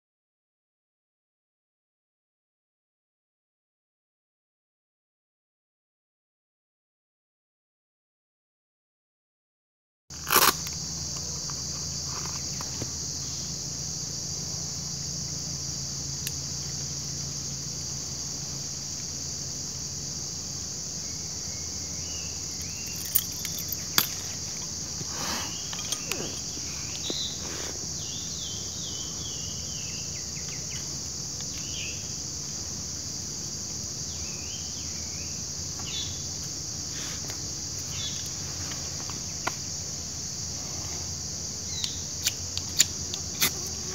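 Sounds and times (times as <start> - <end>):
high-pitched insect chorus: 10.1 - 43.9.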